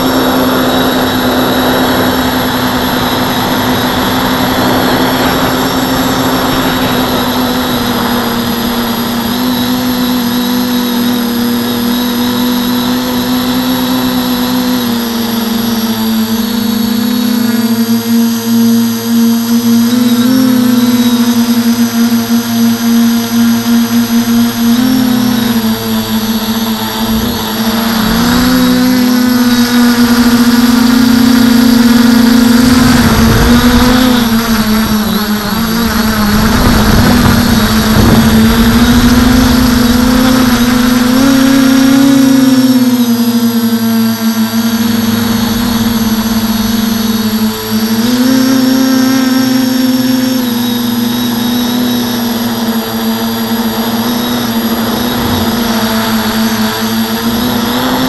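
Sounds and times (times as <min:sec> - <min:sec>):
quadcopter motors whining: 0:00.0 - 0:58.0
rough low rushing noise: 0:32.6 - 0:41.5, 0:53.7 - 0:58.0.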